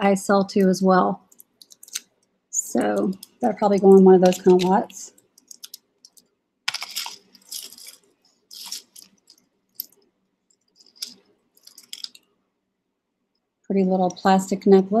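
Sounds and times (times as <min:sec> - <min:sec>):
metal jewelry clinking and rattling: 0:01.3 - 0:12.3.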